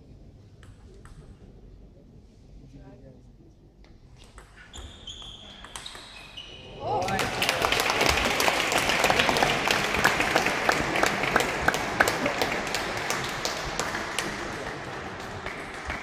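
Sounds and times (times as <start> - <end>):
spectators applauding: 6.9 - 16.0.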